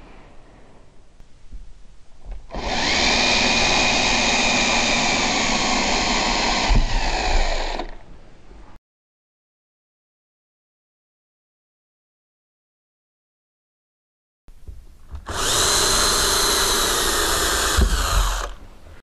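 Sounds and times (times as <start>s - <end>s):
cordless drill whining: 2.5s - 8.0s, 15.2s - 18.6s.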